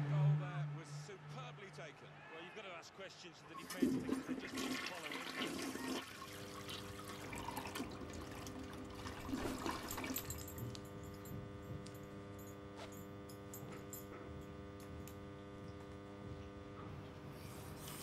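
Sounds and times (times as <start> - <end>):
televised football match: 0.0 - 6.1
water splashing and trickling: 3.6 - 10.4.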